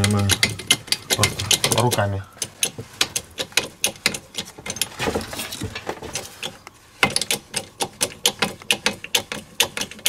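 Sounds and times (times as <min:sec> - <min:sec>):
ratchet wrench clicking: 0:00.0 - 0:04.9, 0:06.4 - 0:10.0.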